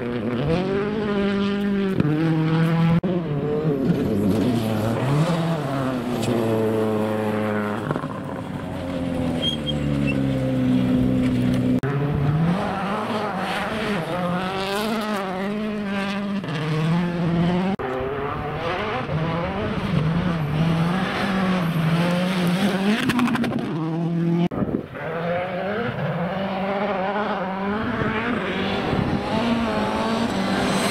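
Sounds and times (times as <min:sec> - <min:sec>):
rally car engine revving: 0:00.0 - 0:30.9.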